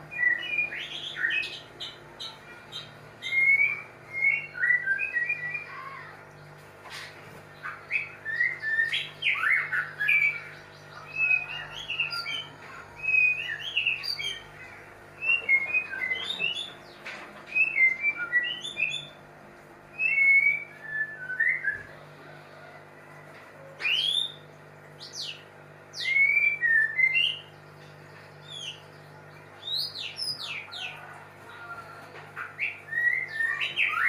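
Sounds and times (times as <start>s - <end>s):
bird singing whistled phrases: 0.1s - 1.6s, 3.2s - 6.1s, 7.9s - 14.4s, 15.2s - 16.8s, 17.5s - 19.2s, 20.0s - 22.0s, 23.8s - 24.4s, 25.0s - 27.5s, 32.5s - 34.0s.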